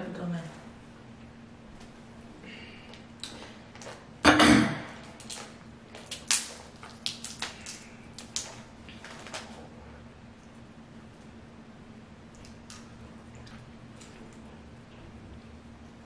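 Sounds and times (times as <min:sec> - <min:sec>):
crab shells cracking: 0:05.1 - 0:09.5.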